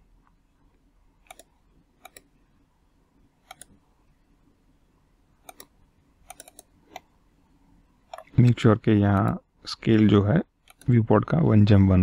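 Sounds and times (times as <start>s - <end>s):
faint room hum: 0.0s - 12.0s
computer mouse clicking: 1.2s - 2.4s, 3.4s - 3.8s, 5.4s - 7.2s, 8.1s - 11.0s.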